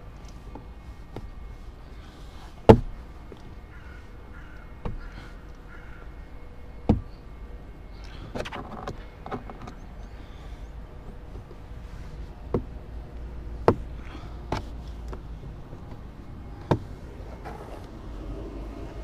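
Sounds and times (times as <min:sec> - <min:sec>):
plastic panel cracking and creaking: 0:08.3 - 0:09.9.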